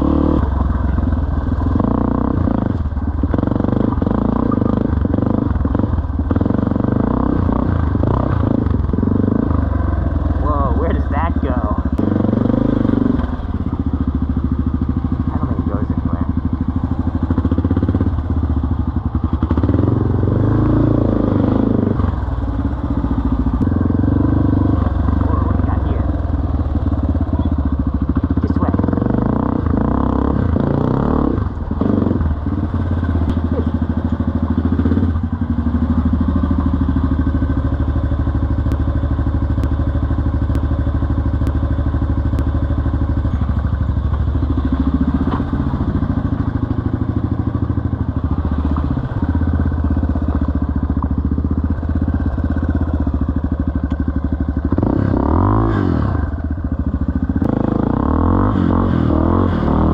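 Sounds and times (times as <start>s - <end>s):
dirt bike engine revving: 0.0s - 37.6s, 54.6s - 56.6s, 57.3s - 59.9s.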